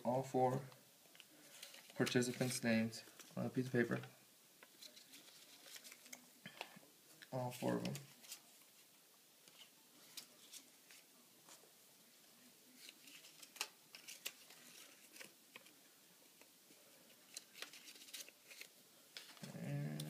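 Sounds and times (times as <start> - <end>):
paper slips crinkling and rustling: 4.7 - 6.2, 12.7 - 15.8, 17.1 - 19.5.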